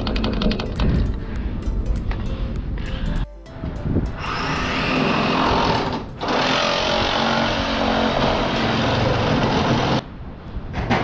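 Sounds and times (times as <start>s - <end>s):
power saw cutting pipe: 4.2s - 10.0s.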